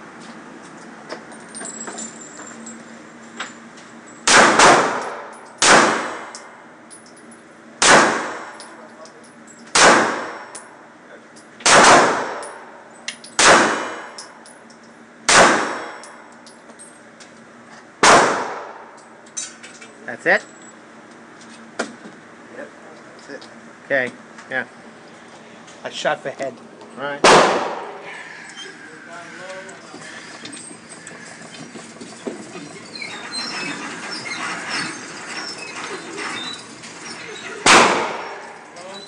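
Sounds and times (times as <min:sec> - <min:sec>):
gunshots echoing: 0:04.3 - 0:06.3, 0:07.8 - 0:08.5, 0:09.8 - 0:10.4, 0:11.6 - 0:12.4, 0:13.4 - 0:14.1, 0:15.3 - 0:16.0, 0:18.0 - 0:18.8, 0:27.2 - 0:28.0, 0:37.6 - 0:38.4.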